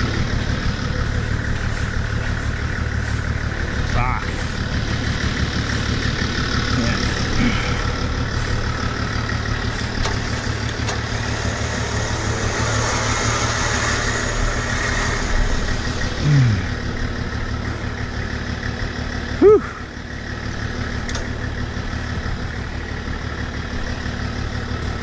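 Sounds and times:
falling whine: 0.0 - 18.0
diesel engine idling: 0.0 - 25.0.

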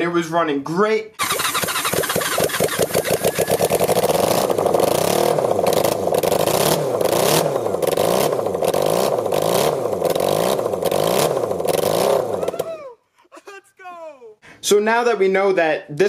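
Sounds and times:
motorcycle engine revving: 1.2 - 12.7.

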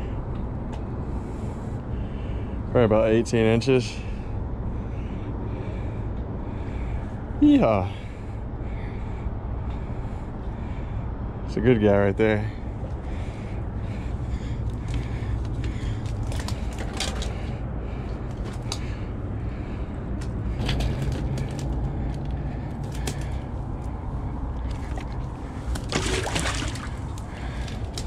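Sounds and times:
low background rumble: 0.0 - 28.0
clicks and rustles: 14.6 - 19.0, 20.2 - 24.0
fish splashing into water: 24.8 - 28.0.

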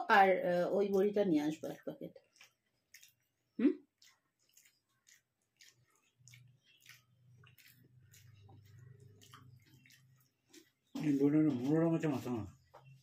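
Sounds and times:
chewing: 2.1 - 12.7
fingers squishing rice on a plate: 2.2 - 11.8.

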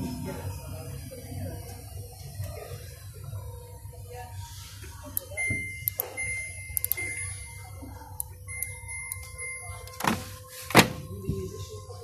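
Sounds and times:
high-pitched electronic beeps: 5.2 - 10.1.

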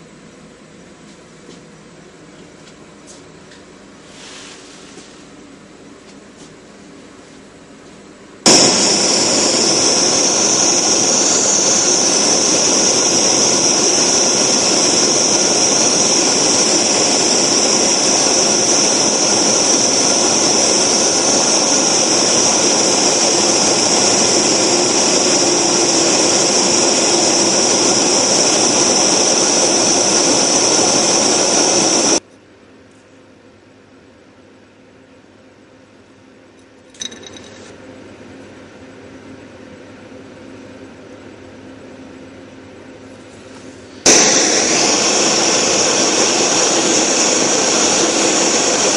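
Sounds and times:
gas torch hissing: 8.5 - 32.2, 44.0 - 48.9.

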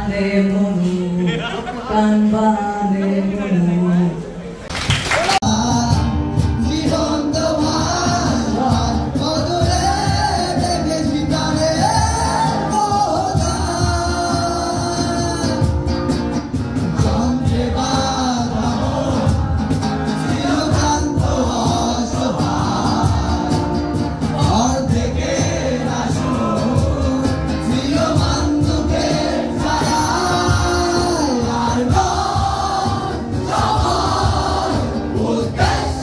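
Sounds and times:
man singing: 0.0 - 4.2, 5.4 - 16.0, 16.8 - 36.0
strummed acoustic guitar: 5.5 - 36.0.

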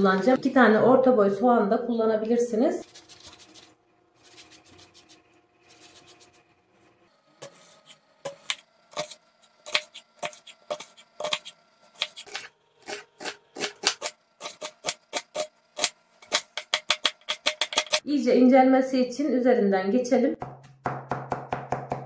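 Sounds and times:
knife slicing onion: 2.8 - 6.4, 7.4 - 18.0.

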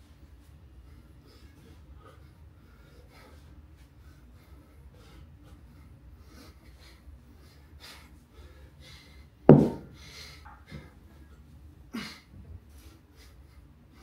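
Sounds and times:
hard breathing: 0.8 - 14.0
kettlebell thud on concrete floor: 9.5 - 9.9.

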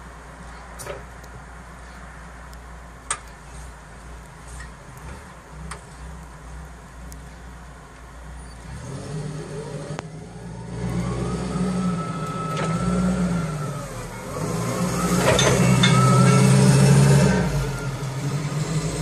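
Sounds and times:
forklift engine running: 3.1 - 19.0
thin whine: 10.3 - 18.6.

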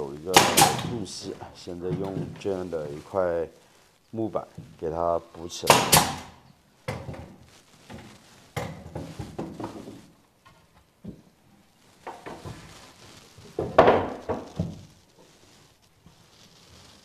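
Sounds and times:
wooden board knocking and scraping: 6.9 - 11.2, 13.6 - 14.8.

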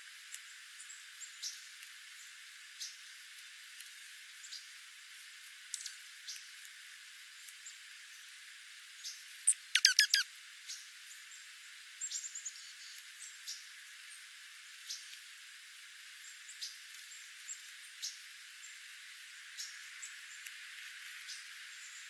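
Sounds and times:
birds chipping: 9.0 - 10.2
rapid bird twitter: 9.0 - 15.1, 19.5 - 20.5, 21.2 - 22.0
quick downward-sweeping bird notes: 9.5 - 10.2.

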